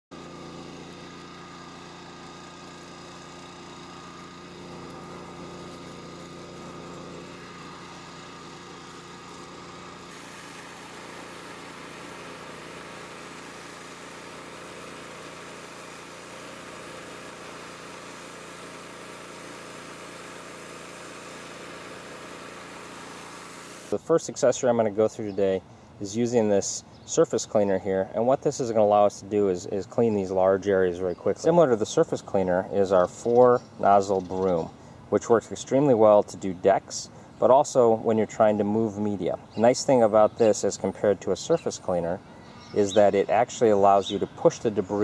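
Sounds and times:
rotary surface cleaner on concrete: 0:00.1 - 0:24.0
pressure washer engine running: 0:00.1 - 0:24.7, 0:37.6 - 0:45.0
hissing water spray: 0:00.2 - 0:24.0.

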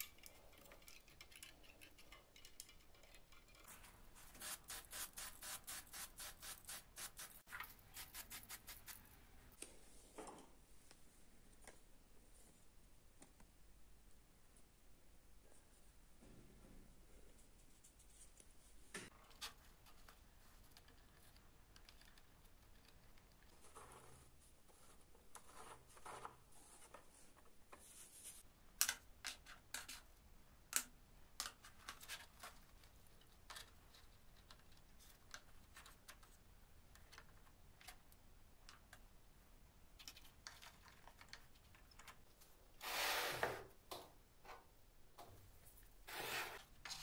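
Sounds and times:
faint rubbing and scraping: 0:45.6 - 0:47.0.

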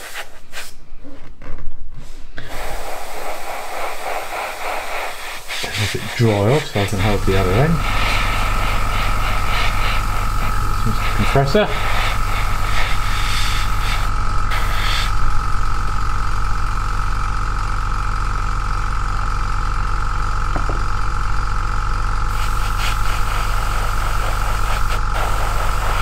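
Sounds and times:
airbrush air hisses: 0:00.0 - 0:00.7, 0:02.4 - 0:15.4, 0:22.3 - 0:26.0
compressor humming and whining: 0:00.0 - 0:26.0.

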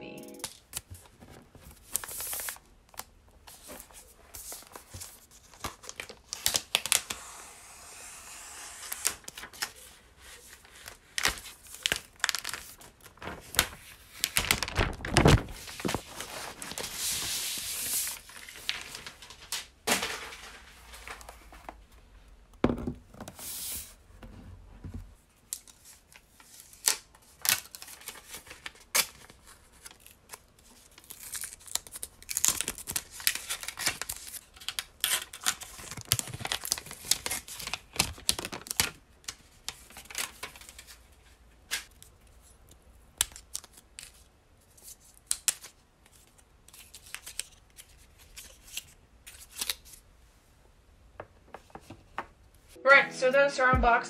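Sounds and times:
plastic crinkling: 0:10.9 - 0:17.2
plastic film tearing and peeling: 0:26.8 - 0:39.0.

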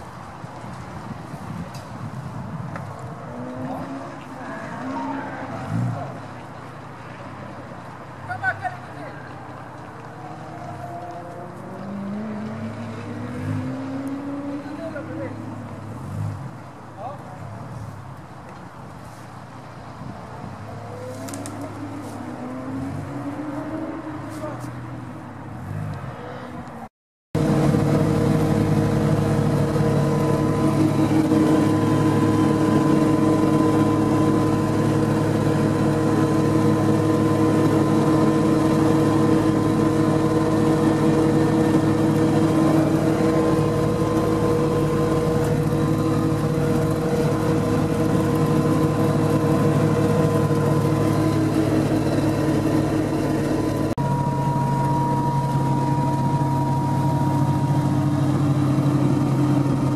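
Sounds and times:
engine and drivetrain drone: 0:02.7 - 0:07.9, 0:09.3 - 0:16.5, 0:20.0 - 0:26.8, 0:27.4 - 0:59.9
drivetrain whine: 0:27.4 - 0:59.9.

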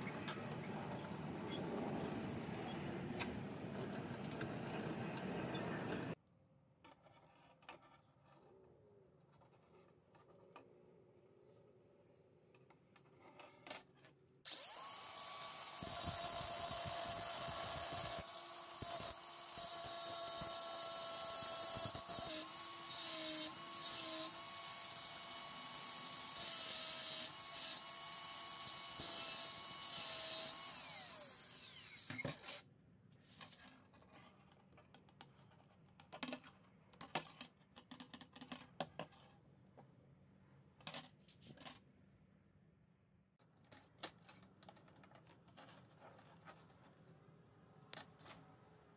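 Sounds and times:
angle grinder cutting steel: 0:14.5 - 0:32.2.

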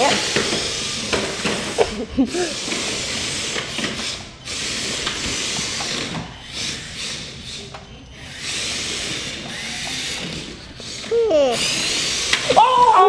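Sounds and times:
electric motors whirring: 0:00.0 - 0:13.0.

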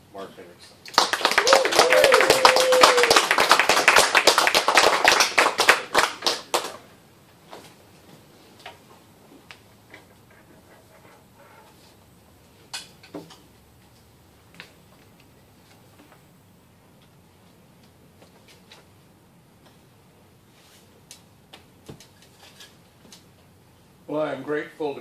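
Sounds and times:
group clapping: 0:00.8 - 0:06.9.

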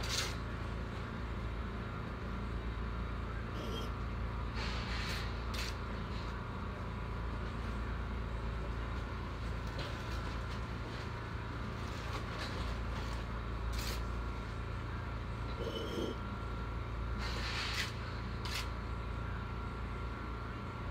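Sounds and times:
low mechanical drone: 0:00.0 - 0:20.9
faint whine: 0:01.7 - 0:08.8.

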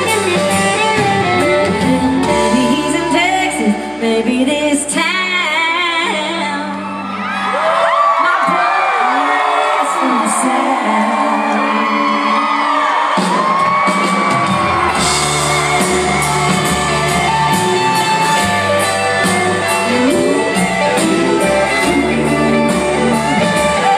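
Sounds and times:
bass: 0:00.0 - 0:08.2, 0:11.5 - 0:23.9
country band playing: 0:00.0 - 0:23.9
person singing: 0:01.6 - 0:07.0, 0:19.7 - 0:23.9
steady drum beat: 0:13.2 - 0:23.9.

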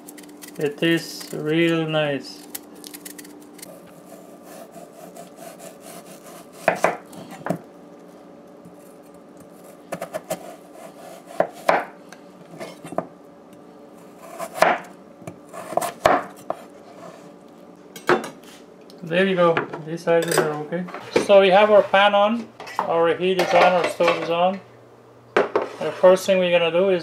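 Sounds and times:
knife chopping on wooden board: 0:04.5 - 0:07.6, 0:09.9 - 0:11.9, 0:14.2 - 0:14.9, 0:15.6 - 0:16.7.

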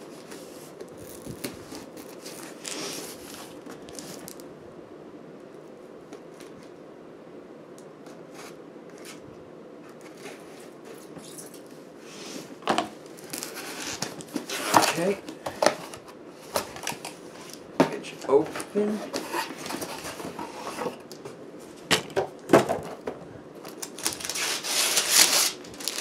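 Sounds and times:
steady low hiss: 0:00.0 - 0:26.0
cardboard box scratching and rustling: 0:24.0 - 0:26.0.

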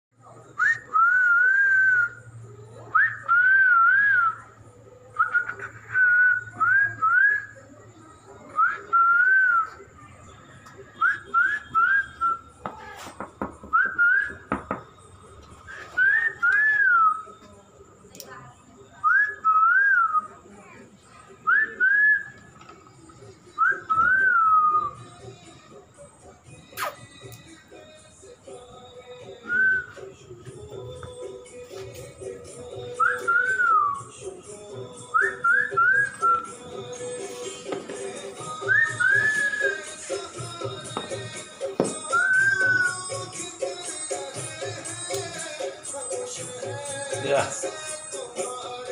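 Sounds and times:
person whistling: 0:00.6 - 0:02.2, 0:11.0 - 0:12.8, 0:13.7 - 0:14.6, 0:15.6 - 0:17.3, 0:23.6 - 0:25.0, 0:26.8 - 0:27.0, 0:29.2 - 0:30.1, 0:32.8 - 0:37.7, 0:38.3 - 0:44.8.

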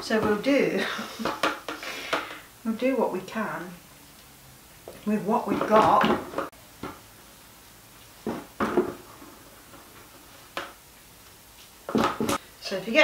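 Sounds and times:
objects clattering on kitchen worktop: 0:01.2 - 0:02.4, 0:08.2 - 0:10.8.

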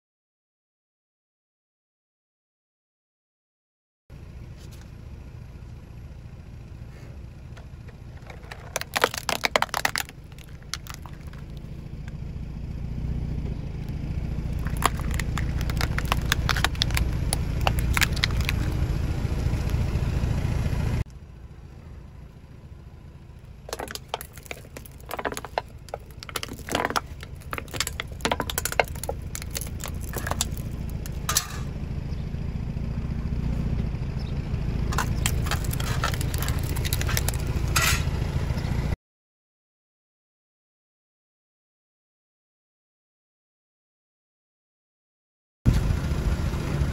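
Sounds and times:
car rumbling on asphalt: 0:04.1 - 0:39.0, 0:45.7 - 0:46.9
plastic toy cracking and crunching: 0:08.2 - 0:11.6, 0:14.6 - 0:18.8, 0:23.7 - 0:31.4, 0:34.9 - 0:37.6.

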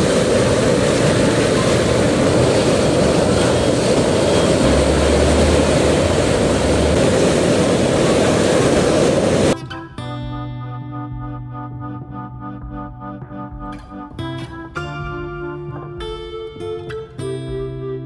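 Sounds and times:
floodwater rushing: 0:00.0 - 0:09.6
low hum: 0:00.0 - 0:09.6.

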